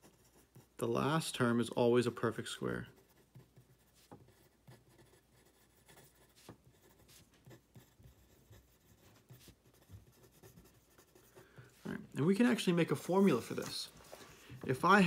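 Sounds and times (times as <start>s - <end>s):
pen scratching on paper: 0.0s - 0.8s, 2.8s - 11.9s.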